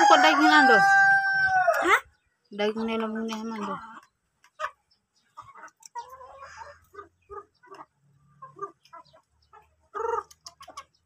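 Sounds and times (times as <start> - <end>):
chickens clucking: 0.0 - 11.0
beaks pecking on a plate: 2.6 - 11.0.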